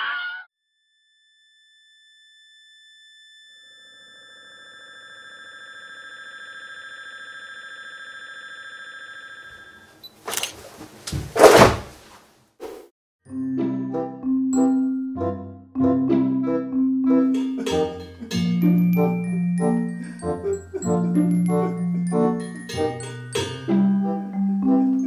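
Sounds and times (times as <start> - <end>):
fluttering ringing tone: 0.7 - 9.9
loud thuds: 10.8 - 12.1.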